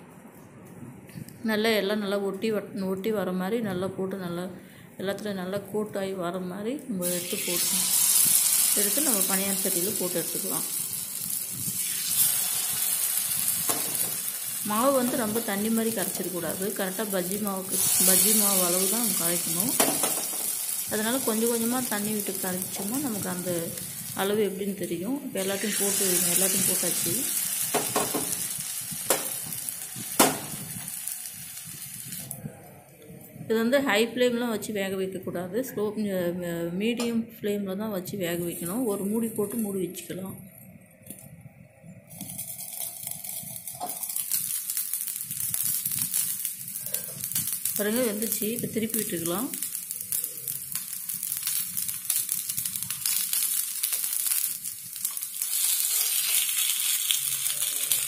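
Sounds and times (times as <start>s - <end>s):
batter sizzling in oil: 7.0s - 32.4s, 42.1s - 58.0s.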